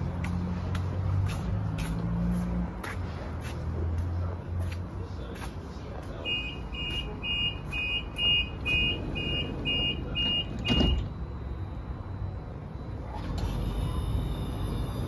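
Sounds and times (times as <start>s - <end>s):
tram doors shutting thump: 8.3s - 11.3s.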